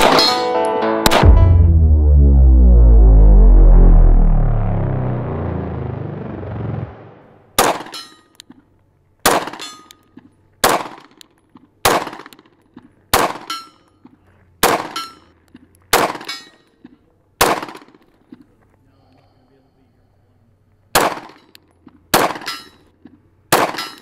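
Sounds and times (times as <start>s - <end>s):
intro music: 0.5s - 7.5s
pistol shots: 7.6s - 8.0s, 9.2s - 9.7s, 10.6s - 11.2s, 11.8s - 12.5s, 13.1s - 13.5s, 14.6s - 15.1s, 15.9s - 16.3s, 17.4s - 18.0s, 20.9s - 21.5s, 22.1s - 22.6s, 23.5s - 24.0s.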